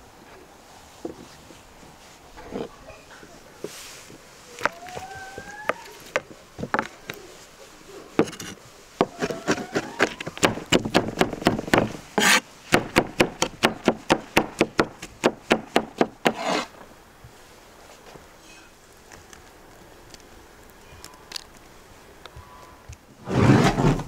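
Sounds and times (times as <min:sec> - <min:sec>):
knife blade scraping board: 0:08.2 - 0:10.2, 0:12.2 - 0:12.4, 0:16.3 - 0:16.7.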